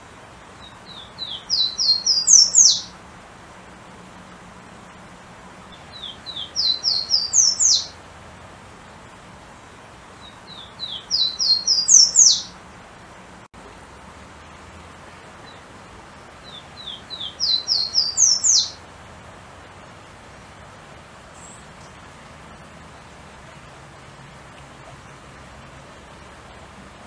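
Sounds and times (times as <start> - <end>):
faint steady hiss: 0.0 - 27.0
warbler singing: 0.6 - 3.0, 5.7 - 8.0, 10.2 - 12.6, 15.1 - 15.7, 16.3 - 18.8, 21.3 - 22.0.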